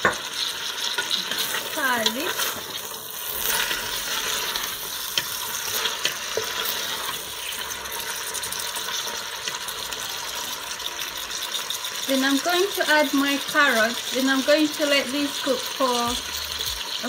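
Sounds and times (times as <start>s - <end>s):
vegetables sizzling in oil: 0.0s - 17.0s
spatula scraping a pot: 0.3s - 10.0s.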